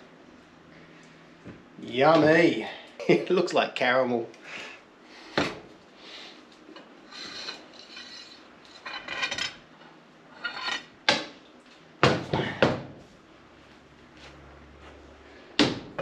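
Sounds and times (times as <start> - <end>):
metal parts clinking and rattling: 7.2 - 9.6.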